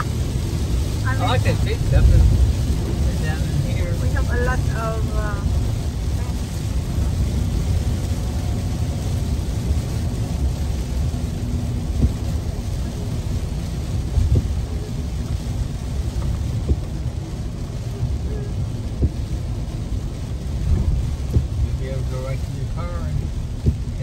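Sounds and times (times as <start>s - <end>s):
rain and tyres on wet road: 0.0s - 24.0s.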